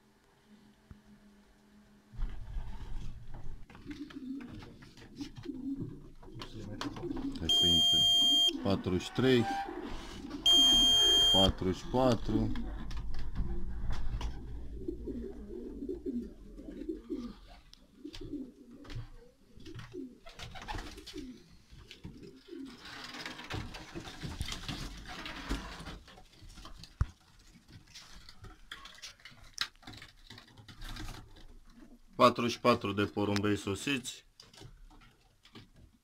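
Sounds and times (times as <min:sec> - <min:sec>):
pigeons cooing: 0:03.7 - 0:23.7
rustling: 0:12.1 - 0:32.2.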